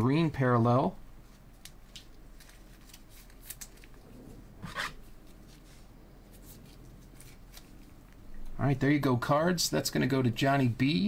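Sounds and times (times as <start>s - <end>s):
faint clicks and rustles of cards: 1.2s - 8.6s.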